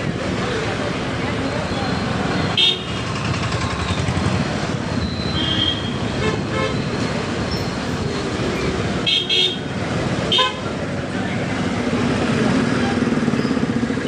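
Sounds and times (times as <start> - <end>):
motorbike engine and road noise: 0.0 - 14.0
vehicle horn toots: 5.4 - 6.8.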